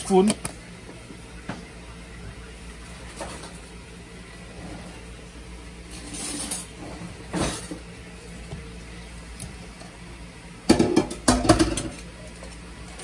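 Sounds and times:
steady low hum: 0.0s - 13.0s
kitchenware clinking: 5.9s - 7.8s, 10.7s - 12.5s.

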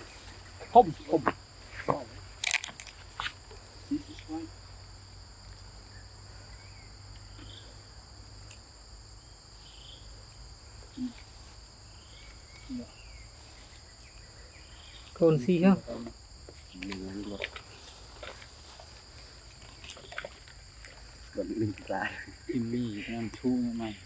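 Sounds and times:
insect drone: 0.0s - 24.0s
faint bird chirps: 5.9s - 7.9s, 11.9s - 15.3s.

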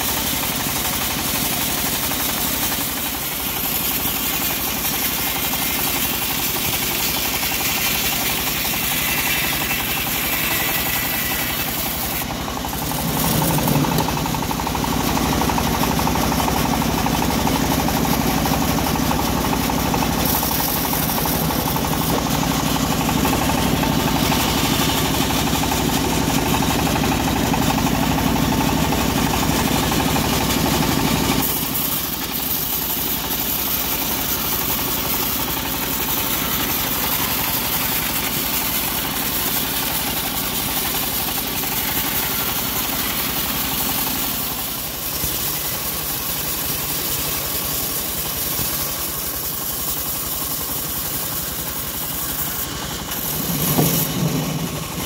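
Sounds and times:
band sawmill sawing a log: 0.0s - 55.0s.

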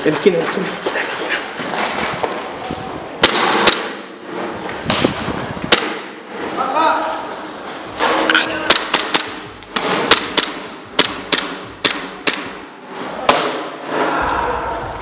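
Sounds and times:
airsoft pistol shots: 3.2s - 4.1s, 5.7s - 6.2s, 8.7s - 12.7s.

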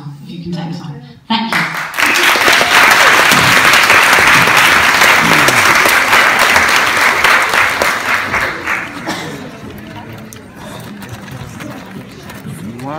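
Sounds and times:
audience applauding: 1.5s - 10.3s.

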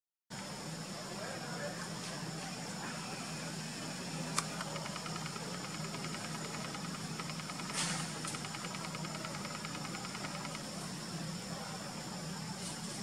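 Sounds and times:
insects droning: 0.4s - 13.0s
rapid pulsing chirp: 4.0s - 10.8s
sharp click: 4.4s - 10.6s.

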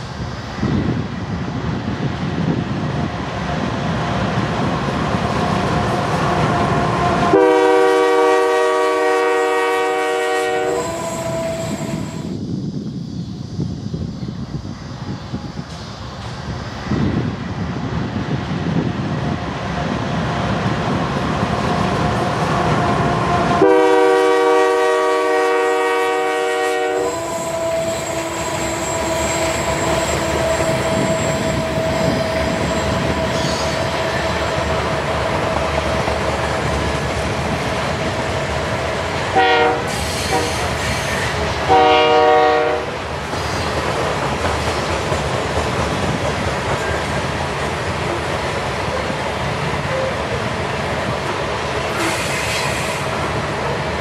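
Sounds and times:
freight train rolling past: 0.0s - 54.0s
locomotive horn blasts: 6.3s - 12.2s, 22.7s - 34.7s, 39.3s - 40.7s, 41.7s - 42.9s.

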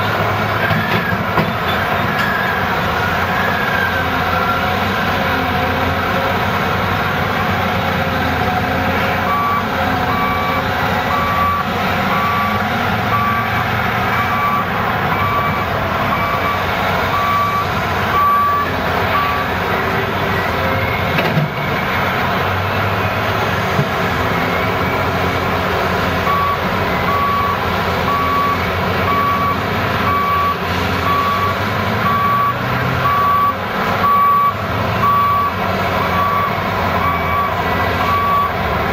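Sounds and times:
excavator engine and hydraulics: 0.0s - 38.9s
truck engines: 0.0s - 38.9s
reversing alarm beeps: 9.2s - 22.0s, 26.2s - 38.6s.

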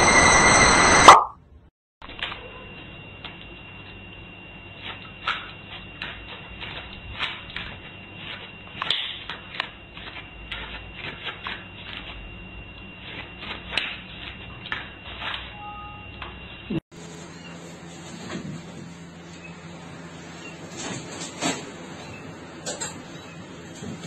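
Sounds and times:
faint high tone: 15.5s - 16.2s.

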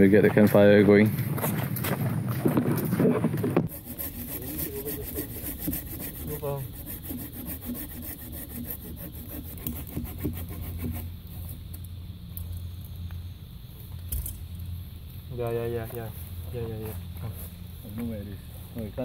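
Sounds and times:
hand saw cutting through log: 3.7s - 11.1s.

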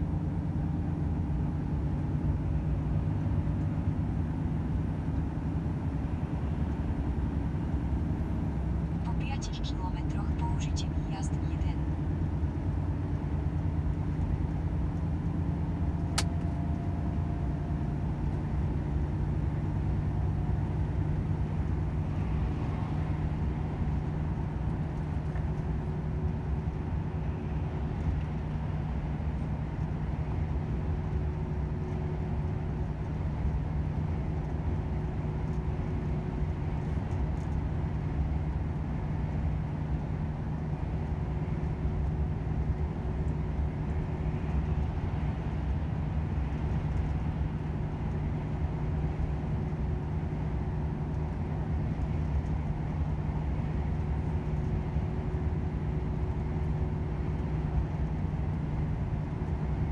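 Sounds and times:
truck diesel engine droning: 0.0s - 32.8s
road noise: 0.0s - 59.9s.

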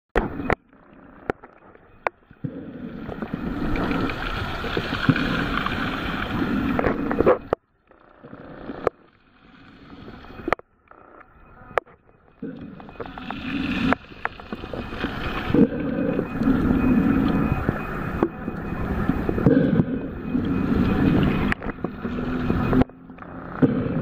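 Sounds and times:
muffled underwater water rushing: 0.2s - 24.0s.

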